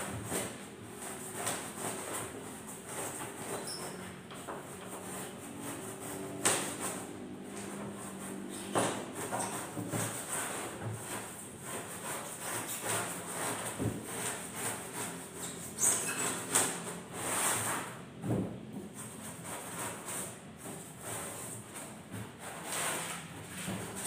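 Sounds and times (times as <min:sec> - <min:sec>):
sandpaper scratching foam: 0:04.9 - 0:18.0, 0:19.0 - 0:24.0.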